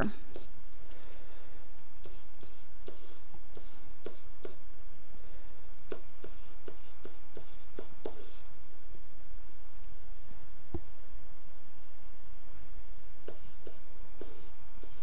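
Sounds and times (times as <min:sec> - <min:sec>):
steady low hum: 0:00.0 - 0:15.0
stylus tapping on tablet screen: 0:05.9 - 0:08.4, 0:13.2 - 0:15.0.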